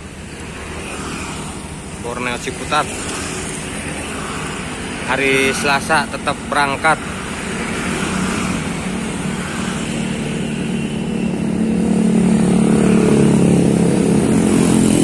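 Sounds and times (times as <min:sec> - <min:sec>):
motorcycle engines passing: 0:00.0 - 0:15.0.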